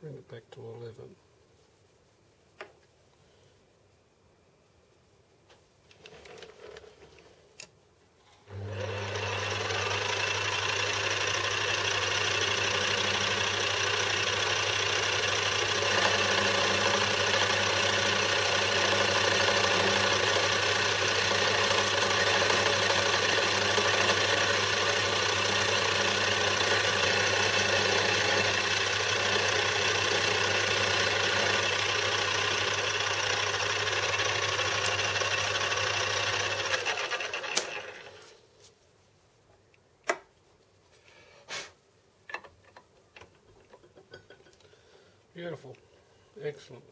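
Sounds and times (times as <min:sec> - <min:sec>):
metal lathe running: 0:08.5 - 0:38.1.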